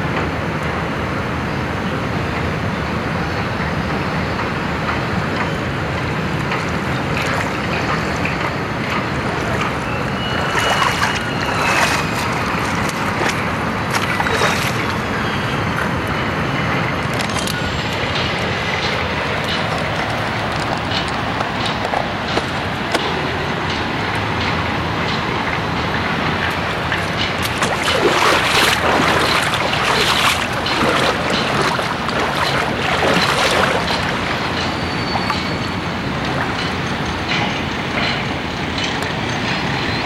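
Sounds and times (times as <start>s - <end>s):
steady rushing noise: 0.0s - 40.0s
feet splashing in water: 6.4s - 23.1s, 26.4s - 36.8s.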